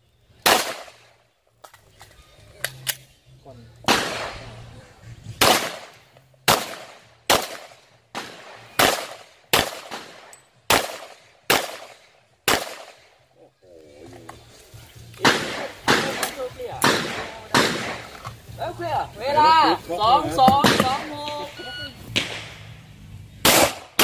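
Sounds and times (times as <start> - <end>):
pistol shots with echo: 0.4 - 1.1, 3.9 - 4.6, 5.4 - 13.1, 15.2 - 18.1, 23.4 - 24.0.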